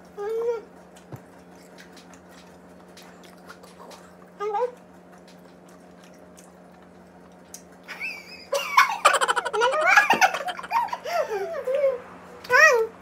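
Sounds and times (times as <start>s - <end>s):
women laughing and squealing: 8.6s - 11.7s.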